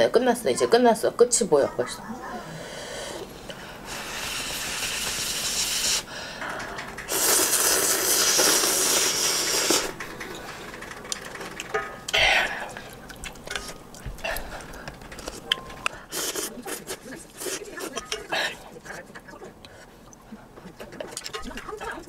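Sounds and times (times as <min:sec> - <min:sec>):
person sniffing: 0:03.9 - 0:06.1
person slurping noodles: 0:07.1 - 0:09.9, 0:16.1 - 0:18.6.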